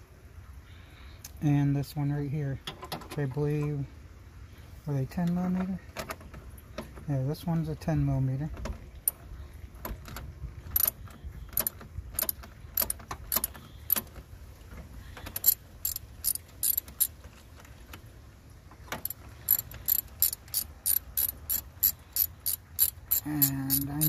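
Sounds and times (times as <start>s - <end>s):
ratchet wrench clicking: 10.8s - 11.0s, 11.6s - 14.1s, 15.3s - 17.2s, 19.0s - 24.0s.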